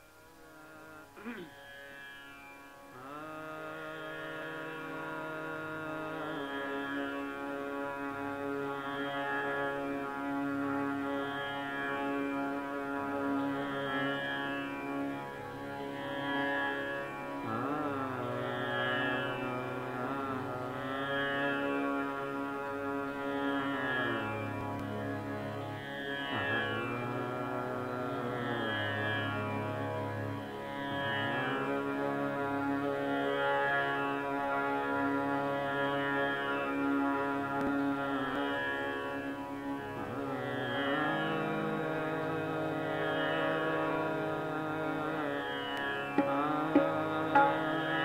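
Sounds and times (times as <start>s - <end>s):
man singing classical notes: 0.0s - 1.5s, 3.0s - 11.2s, 17.4s - 25.0s, 40.0s - 48.0s
steady drone: 46.1s - 48.0s.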